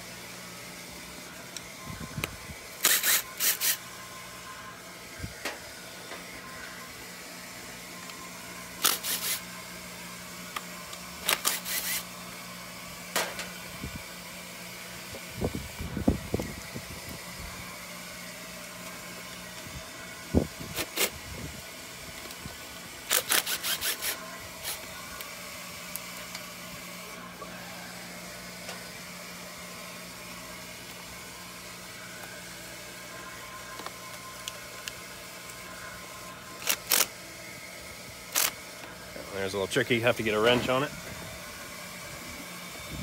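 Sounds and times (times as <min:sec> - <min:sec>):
steady low hum: 0:00.0 - 0:43.0
cordless power driver whirring: 0:01.5 - 0:04.0, 0:07.9 - 0:31.6, 0:36.4 - 0:39.3, 0:40.4 - 0:43.0.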